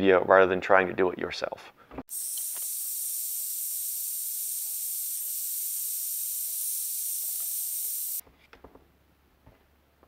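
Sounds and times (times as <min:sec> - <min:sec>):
heat gun blowing air: 0:02.1 - 0:08.2.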